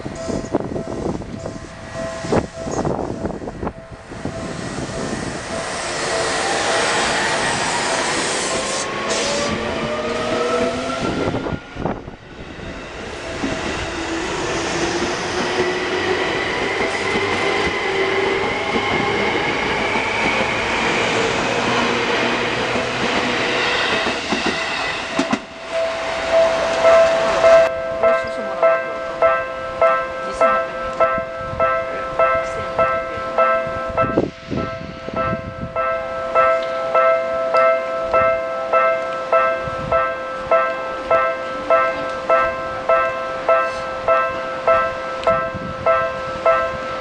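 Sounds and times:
train running noise: 0:00.0 - 0:47.0
electric train motors whining: 0:00.4 - 0:27.7.

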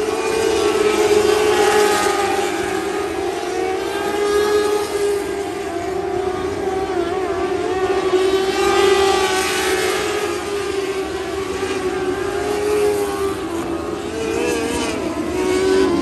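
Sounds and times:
race car engines whining: 0:00.0 - 0:16.0.

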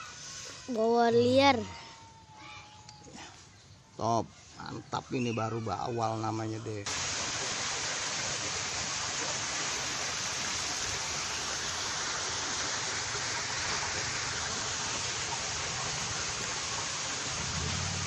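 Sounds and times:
steady rushing water noise: 0:06.1 - 0:18.0.

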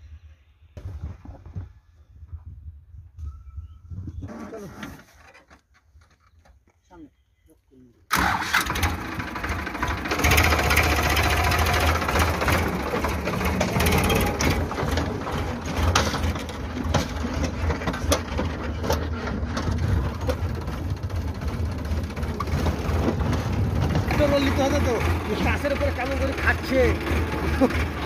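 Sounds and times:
tractor diesel engine running: 0:08.1 - 0:28.0
clicks and rattles: 0:09.8 - 0:24.2.

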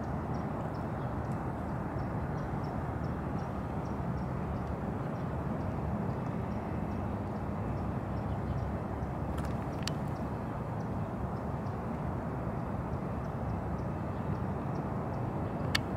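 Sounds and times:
faint high ticks: 0:09.4 - 0:11.8.

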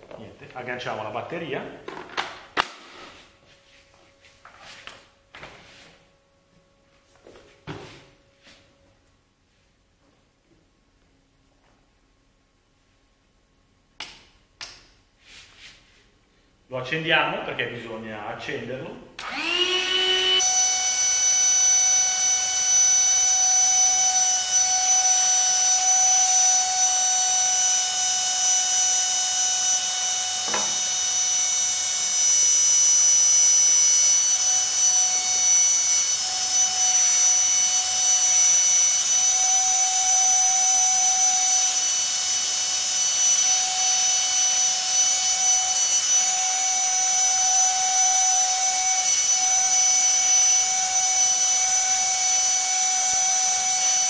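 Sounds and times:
air compressor whining: 0:19.2 - 0:54.0.

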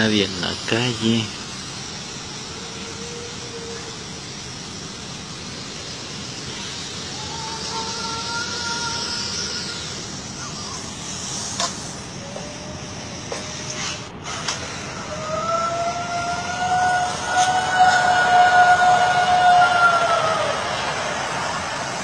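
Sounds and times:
steady hiss: 0:00.0 - 0:22.0
drawn-out wail: 0:02.2 - 0:04.1, 0:06.4 - 0:11.2, 0:12.2 - 0:13.8, 0:14.8 - 0:22.0.

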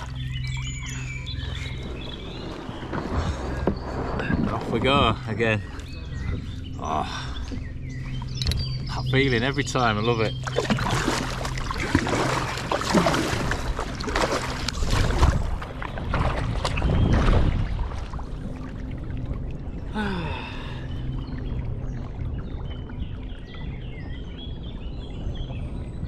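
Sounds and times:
water washing along hull: 0:00.0 - 0:26.0
paddle splashing in water: 0:01.4 - 0:05.0, 0:10.2 - 0:18.9.

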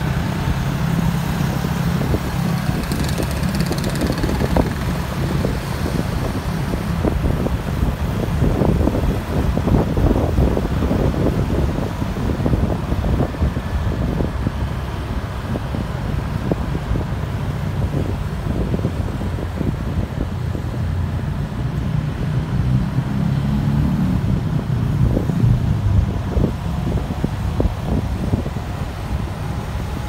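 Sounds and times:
traffic: 0:00.0 - 0:30.0
wind buffeting microphone: 0:00.2 - 0:21.2, 0:24.2 - 0:30.0
motor humming: 0:02.4 - 0:05.7.

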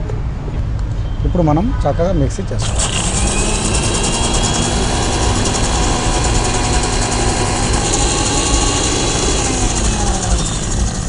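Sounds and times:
mixer grinder motor running: 0:02.6 - 0:11.0.

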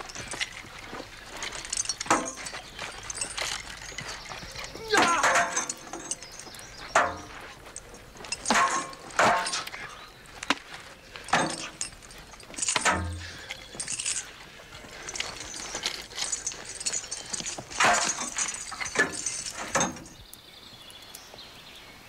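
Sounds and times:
swords clashing: 0:04.8 - 0:06.0, 0:08.5 - 0:09.8.

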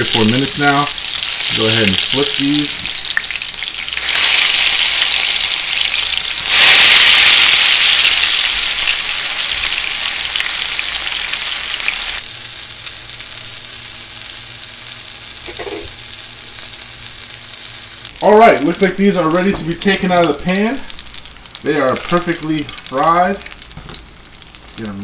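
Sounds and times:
hot oil sizzling in a pan: 0:00.0 - 0:25.0.

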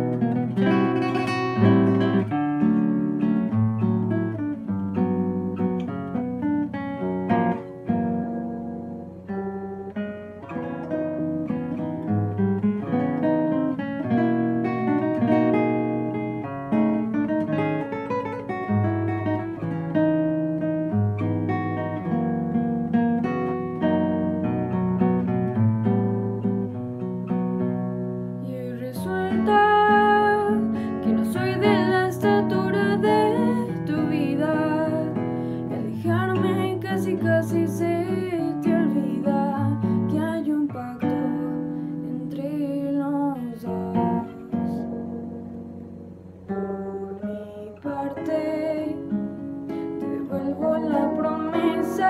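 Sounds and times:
fingerpicked classical guitar: 0:00.0 - 0:52.0
woman singing with vibrato: 0:28.4 - 0:45.5, 0:47.0 - 0:52.0.

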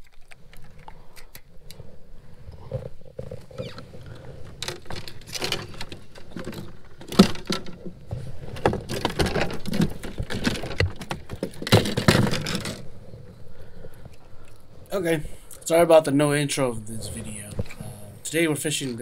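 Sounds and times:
fishing gear rattling and rustling: 0:00.0 - 0:14.9.

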